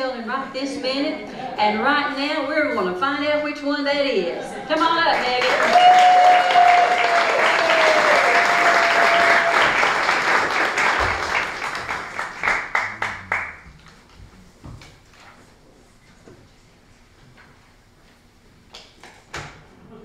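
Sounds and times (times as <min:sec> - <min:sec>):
audience applauding: 0:04.8 - 0:14.2
person cheering: 0:05.5 - 0:10.0.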